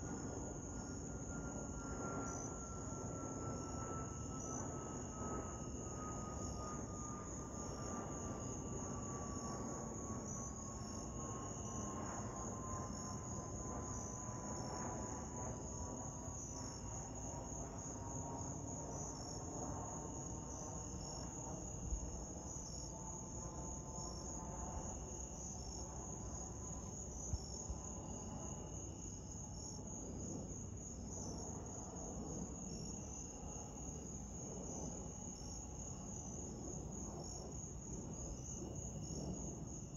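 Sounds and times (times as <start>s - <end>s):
jet airliner passing overhead: 0.0s - 22.4s, 39.2s - 39.8s
insects chirping: 0.0s - 39.9s.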